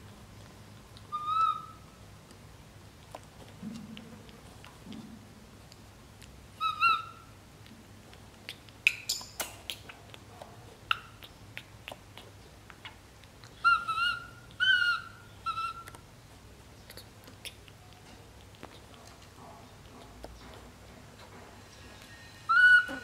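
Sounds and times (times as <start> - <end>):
infant monkey crying with whistle-like coos: 1.1 - 1.8, 6.6 - 7.3, 13.6 - 15.9, 22.5 - 23.0.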